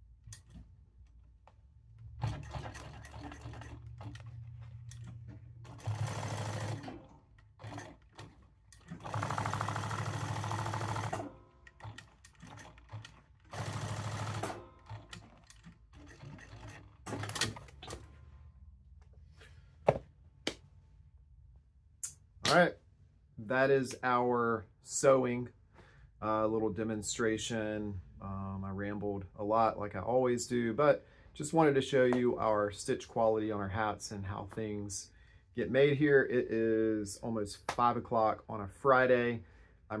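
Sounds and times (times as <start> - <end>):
sewing machine stitching: 2.2 - 18.0.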